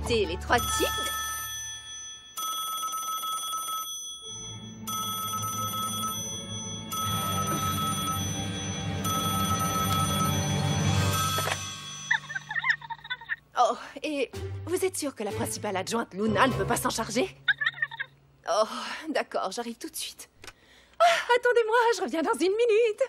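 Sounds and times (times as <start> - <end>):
background music: 0.0 - 2.0, 4.2 - 17.5
telephone bell ringing: 0.6 - 12.8.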